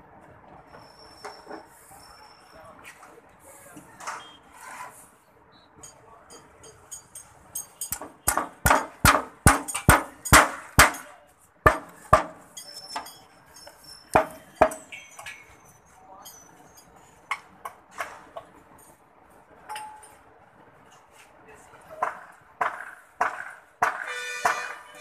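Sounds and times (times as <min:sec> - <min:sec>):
hammer blows on timber: 0:22.0 - 0:24.8.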